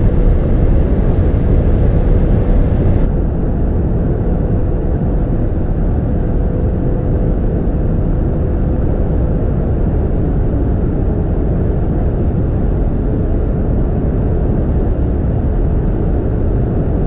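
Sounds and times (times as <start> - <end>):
car engine at high speed: 0.0 - 3.1
wind and tyre noise: 0.0 - 17.0.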